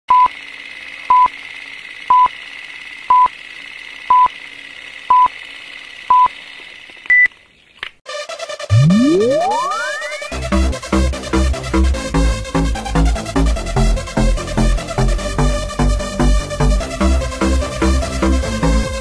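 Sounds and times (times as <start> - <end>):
electronic music with rising sweep: 8.1 - 19.0
higher-pitched beep: 8.7 - 10.4.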